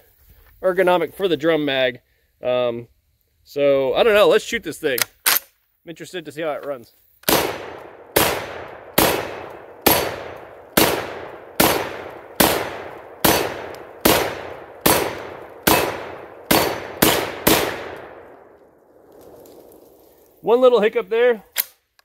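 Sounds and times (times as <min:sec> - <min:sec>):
shotgun shots: 0:07.2 - 0:18.6.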